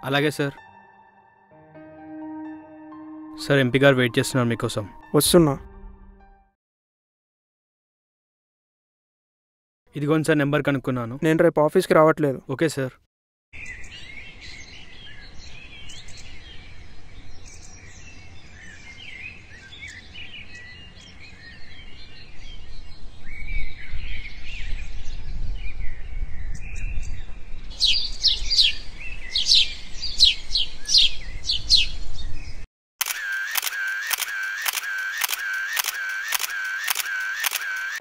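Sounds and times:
songbirds chirping: 0:13.6 - 0:32.6.

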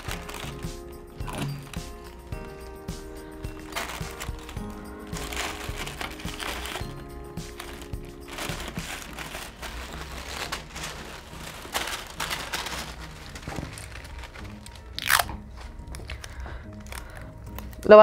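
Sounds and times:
tissue paper crinkling: 0:00.0 - 0:18.0.

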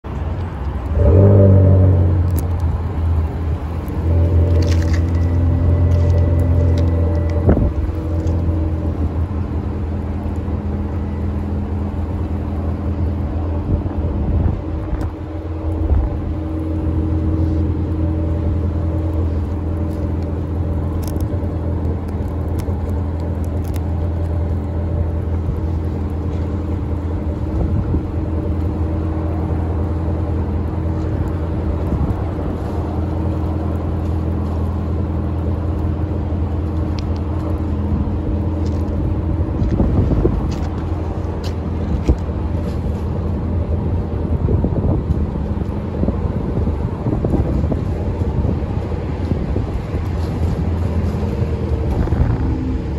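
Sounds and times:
small ticks: 0:20.9 - 0:24.4.

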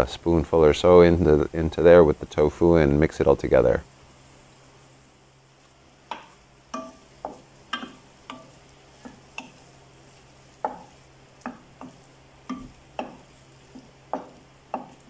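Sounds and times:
spoon knocking against pan: 0:06.1 - 0:09.6, 0:10.6 - 0:15.0.

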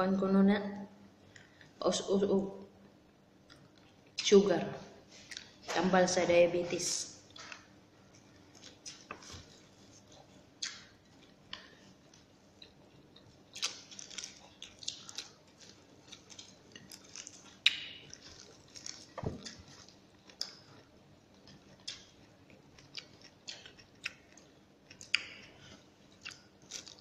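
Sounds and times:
person chewing food: 0:07.3 - 0:27.0.

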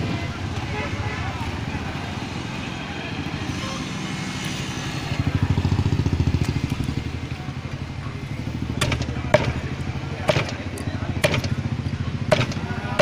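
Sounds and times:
small vehicle engine running: 0:01.3 - 0:13.0
cleaver striking chopping block: 0:08.8 - 0:09.6, 0:10.3 - 0:10.6, 0:11.2 - 0:11.6, 0:12.3 - 0:13.0.

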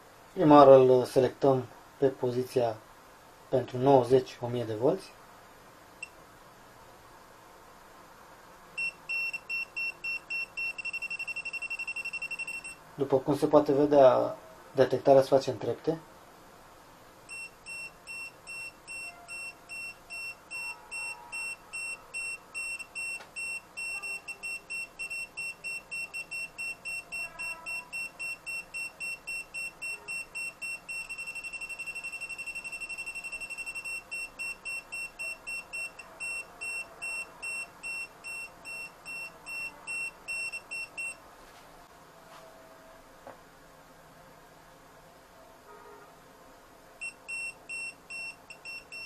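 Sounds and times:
voltage detector beeping: 0:08.8 - 0:12.8, 0:17.3 - 0:41.2, 0:47.0 - 0:49.0.

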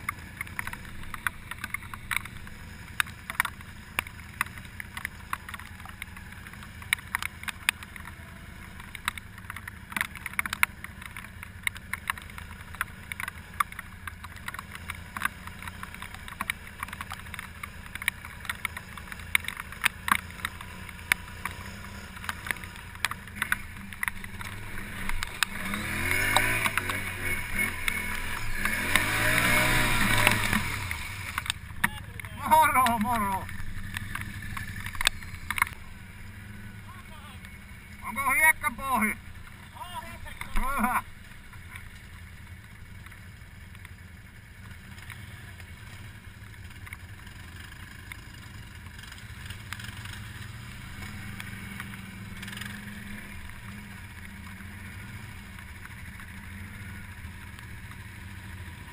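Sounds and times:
sharp clicks and knocks: 0:00.0 - 0:35.9
atv engine running: 0:00.0 - 0:58.9.

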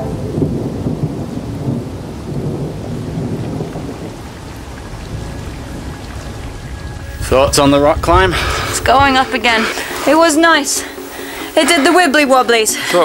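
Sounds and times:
low rough rumbling: 0:00.0 - 0:10.4.

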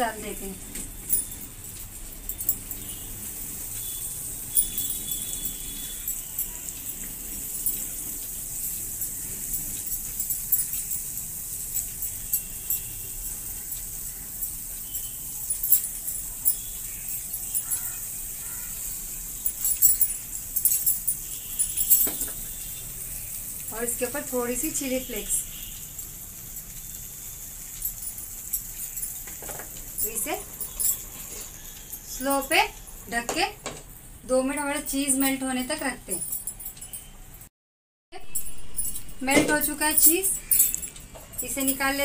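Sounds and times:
butter sizzling in a frying pan: 0:00.0 - 0:20.6, 0:22.4 - 0:33.5
bangles clinking: 0:00.0 - 0:37.5, 0:38.2 - 0:42.0.

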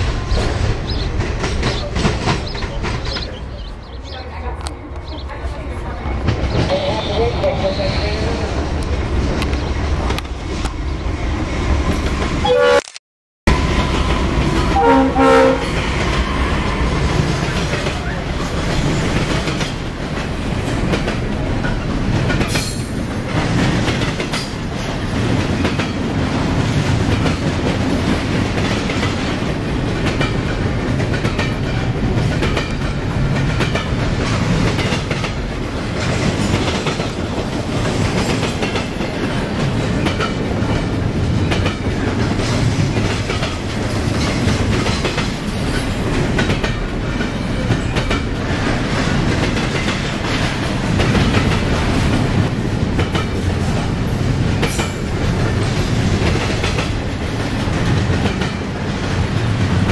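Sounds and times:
freight train rumbling by: 0:00.0 - 0:12.8, 0:13.5 - 0:59.9
locomotive horn blast: 0:12.4 - 0:12.9, 0:14.8 - 0:15.8.

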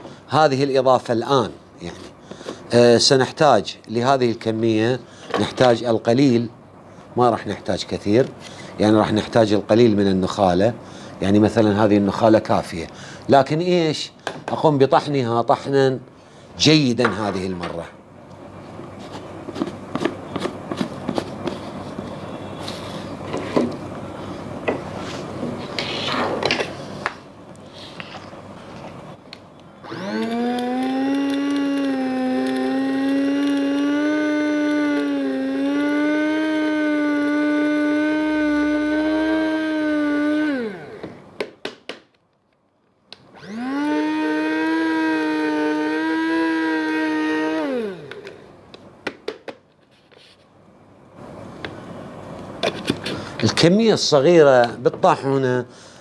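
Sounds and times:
electric grinder motor whining: 0:29.8 - 0:41.1, 0:43.3 - 0:48.4.

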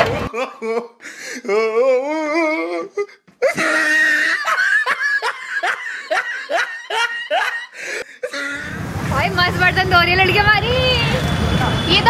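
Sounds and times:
women laughing: 0:03.4 - 0:08.7.

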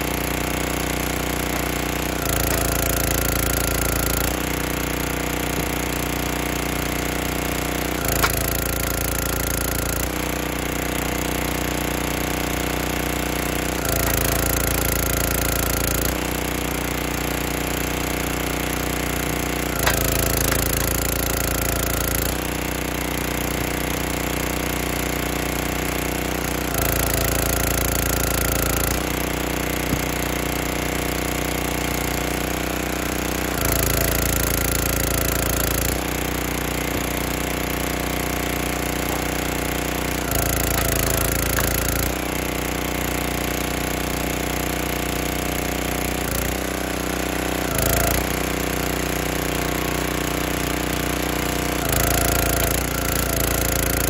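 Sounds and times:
small gas engine running: 0:00.0 - 0:54.0
wood cracking: 0:08.1 - 0:09.0, 0:40.5 - 0:42.1.

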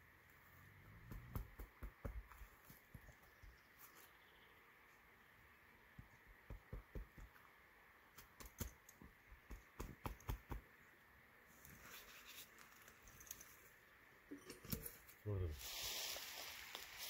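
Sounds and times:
faint rustle of dirt: 0:00.0 - 0:17.0
hands patting soil: 0:00.8 - 0:04.2, 0:05.9 - 0:07.5, 0:08.1 - 0:10.7.

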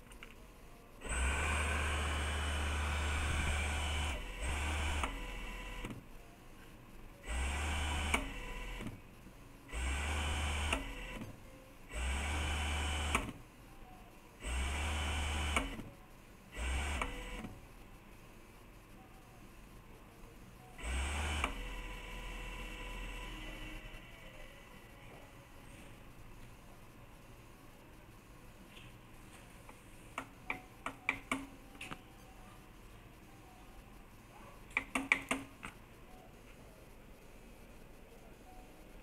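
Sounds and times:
sewing machine motor humming: 0:01.0 - 0:06.0, 0:07.2 - 0:09.0, 0:09.7 - 0:11.2, 0:11.9 - 0:13.4, 0:14.4 - 0:15.9, 0:16.6 - 0:17.6, 0:20.8 - 0:24.0.

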